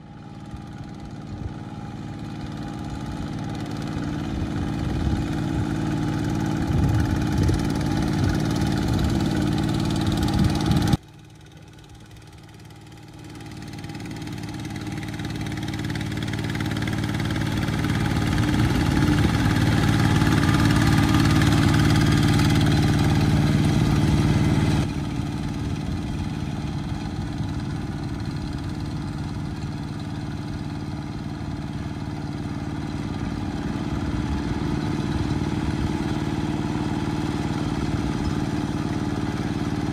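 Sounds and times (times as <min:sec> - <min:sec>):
diesel engine running under load: 0:00.0 - 0:39.9.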